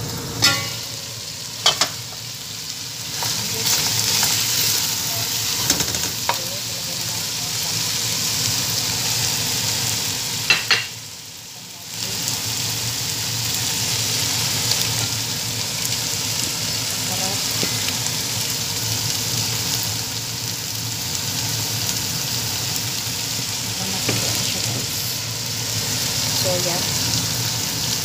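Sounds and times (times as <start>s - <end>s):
chicken sizzling in a pot: 0.0s - 28.0s
clinks against a metal pot: 0.4s - 0.9s, 1.6s - 2.0s, 10.5s - 11.0s.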